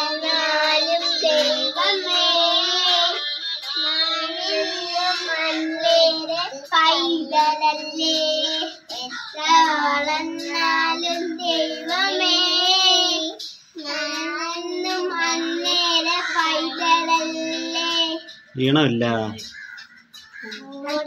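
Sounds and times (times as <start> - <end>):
children singing: 0.0 - 19.6, 20.2 - 21.0.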